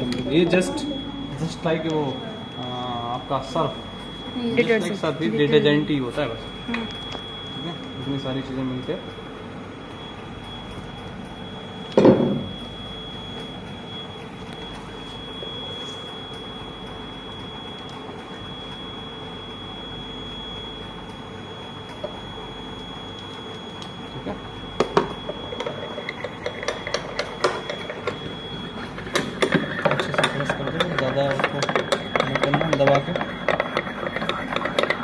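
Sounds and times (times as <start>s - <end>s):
room hum: 0.0s - 35.0s
thin high whine: 0.0s - 35.0s
pestle grinding in porcelain mortar: 25.6s - 35.0s.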